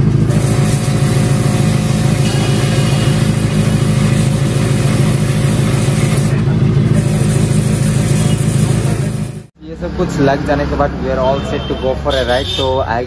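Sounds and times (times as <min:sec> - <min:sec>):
pressure washer humming: 0:00.0 - 0:09.5.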